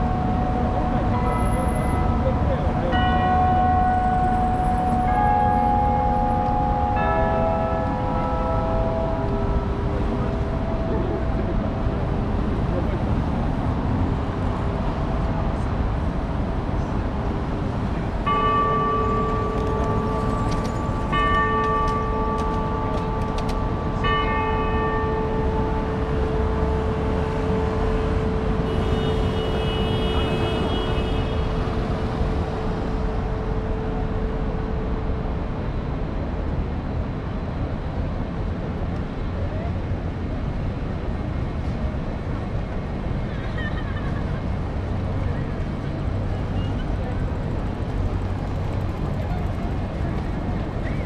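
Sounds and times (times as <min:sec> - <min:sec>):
large bell ringing: 0:00.0 - 0:12.6, 0:18.2 - 0:35.5
city traffic: 0:00.0 - 0:51.0.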